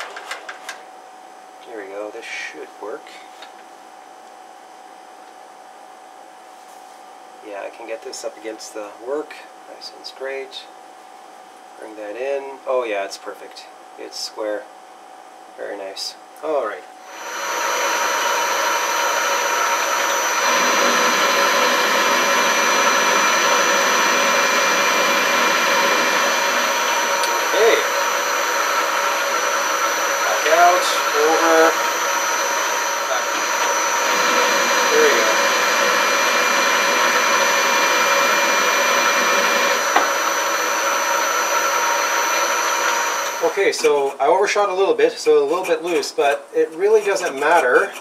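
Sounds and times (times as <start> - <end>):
metal lathe running: 17.0 - 44.3.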